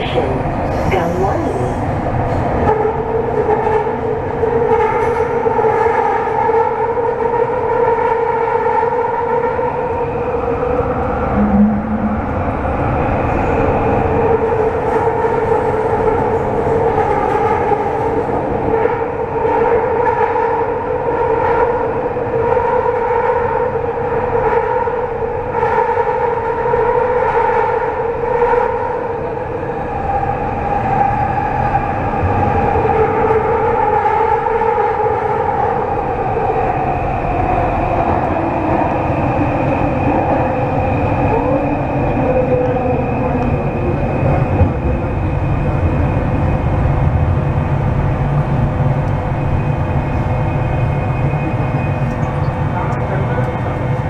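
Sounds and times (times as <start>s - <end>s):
brief low tone: 0.0s - 1.8s, 11.3s - 12.8s
train two-tone hum: 0.0s - 54.0s.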